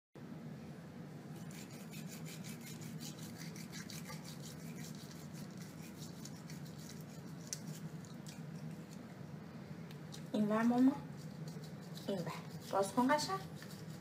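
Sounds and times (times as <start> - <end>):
steady low hum: 0.2 - 14.0
toothbrush bristle scrubbing: 1.4 - 9.1, 10.6 - 14.0.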